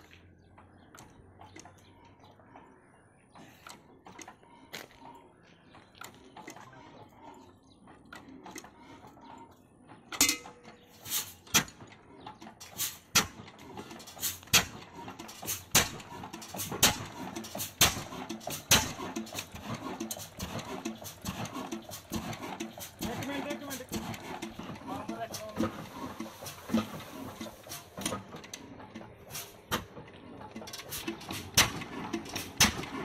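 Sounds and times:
diesel engine exhaust beats: 0:00.0 - 0:33.0
engine mechanical clatter: 0:00.0 - 0:33.0.

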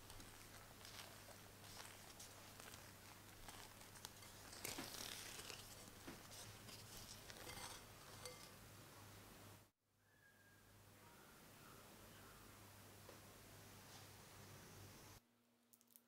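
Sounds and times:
spatula scraping glass bowl: 0:03.4 - 0:08.6.

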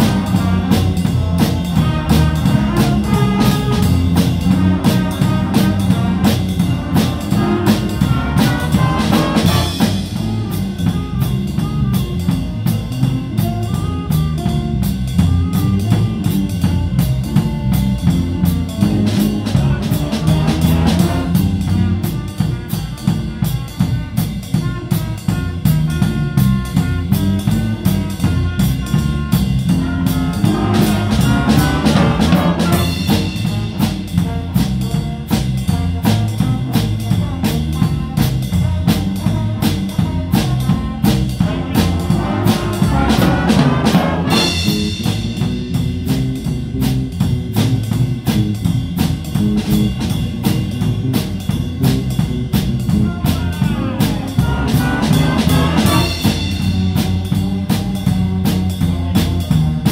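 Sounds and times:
drum kit beat: 0:00.0 - 0:59.9
horn lines: 0:00.0 - 0:59.9
live band music: 0:00.0 - 0:59.9.

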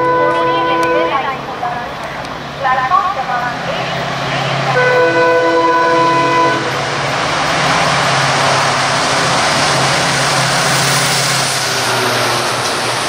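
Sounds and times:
locomotive horn: 0:00.0 - 0:01.5, 0:03.8 - 0:07.0
train rushing past: 0:00.0 - 0:13.0.

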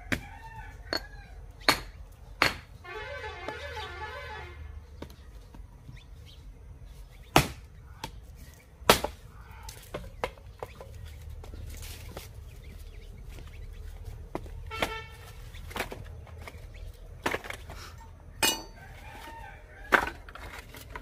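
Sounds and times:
axe chopping wood: 0:07.3 - 0:08.2, 0:08.8 - 0:09.2
wood pieces clattering: 0:17.2 - 0:18.8, 0:19.9 - 0:21.0.

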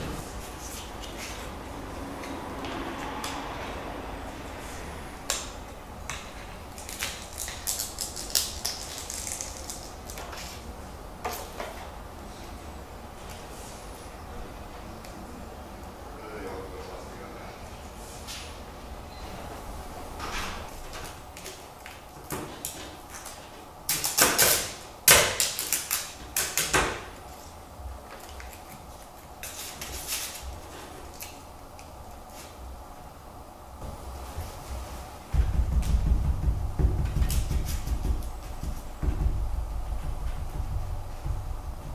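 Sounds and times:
foil sheet crinkling: 0:06.7 - 0:10.6.

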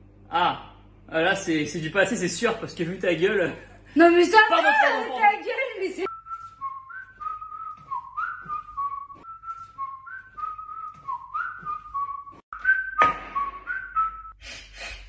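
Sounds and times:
person whistling a tune: 0:06.1 - 0:14.4.

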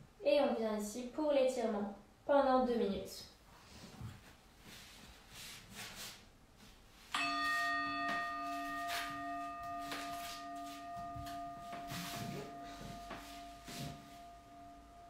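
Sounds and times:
singing bowl ringing: 0:07.2 - 0:15.0.

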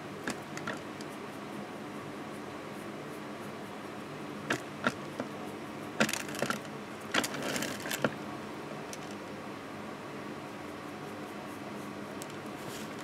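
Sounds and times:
steady low hum: 0:00.0 - 0:13.0
board scraping on woven mat: 0:07.2 - 0:08.1, 0:12.6 - 0:13.0.

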